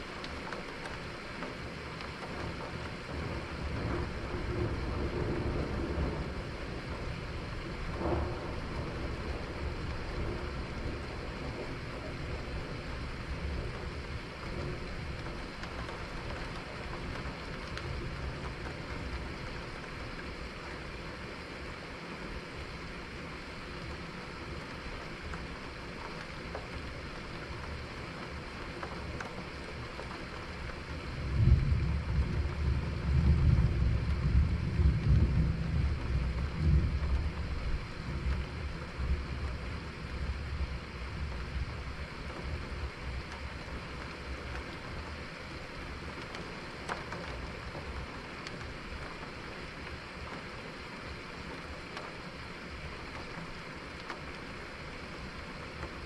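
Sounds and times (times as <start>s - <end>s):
steady rain hiss: 0.0s - 56.0s
thunder rumbling: 2.4s - 20.8s, 28.5s - 49.2s.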